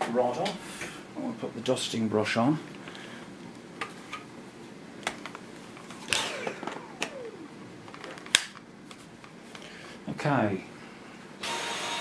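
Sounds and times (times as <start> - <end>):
plastic vacuum attachments clicking: 6.1 - 8.6.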